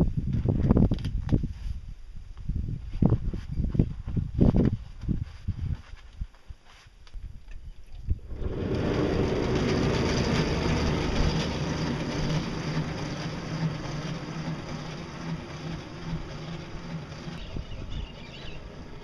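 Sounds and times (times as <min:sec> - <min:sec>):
boat drive whirring: 0:07.9 - 0:19.0.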